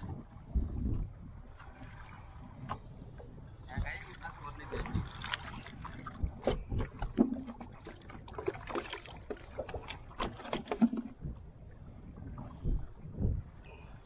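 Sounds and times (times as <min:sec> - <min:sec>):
fish thrashing and splashing: 0:05.1 - 0:11.1.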